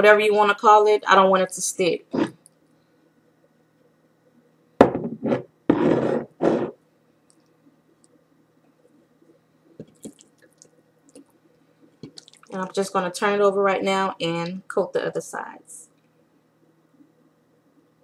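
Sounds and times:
dull rubbing noise: 5.0s - 6.8s.

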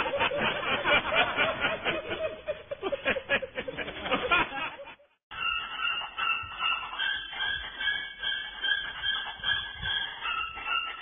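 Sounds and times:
snickering laughter: 0.0s - 5.2s.

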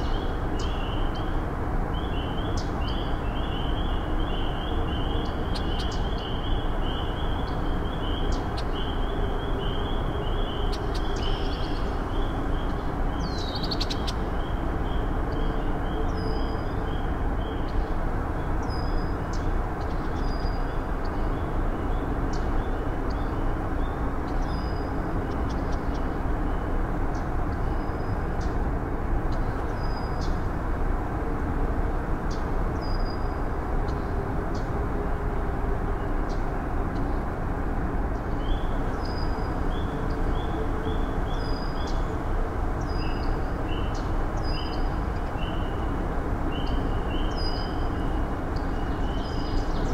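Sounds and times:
birds chirping: 0.0s - 30.5s
steady outdoor rushing noise: 0.0s - 49.9s.

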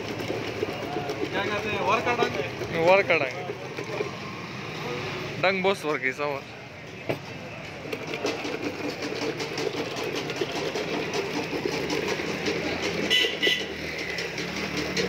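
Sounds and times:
small engine rattling: 0.0s - 4.9s, 7.6s - 15.0s
motorbikes passing: 0.0s - 15.0s
street traffic: 0.0s - 15.0s.

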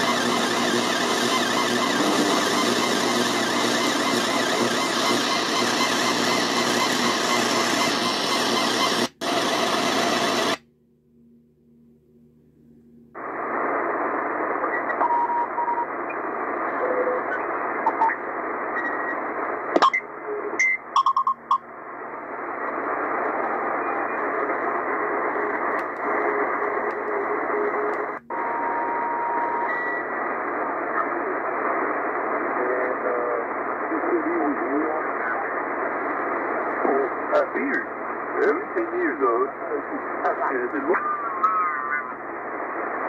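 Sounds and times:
radio crackles: 0.0s - 10.6s, 13.2s - 43.0s
radio static hiss: 0.0s - 10.6s, 13.2s - 20.6s, 21.8s - 43.0s
radio whistling tones: 0.0s - 10.6s, 13.2s - 20.6s, 22.4s - 43.0s.

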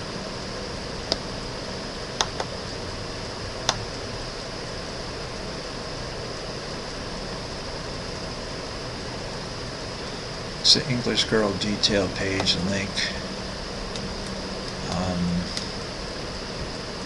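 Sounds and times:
steady hiss: 0.0s - 17.0s
computer mouse clicking: 2.2s - 2.5s, 3.6s - 3.8s.

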